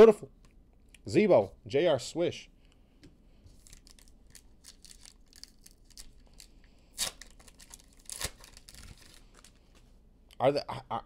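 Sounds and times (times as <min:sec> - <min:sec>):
foil wrapper ripping: 0:03.6 - 0:09.5
foil wrapper crinkling: 0:03.6 - 0:09.6.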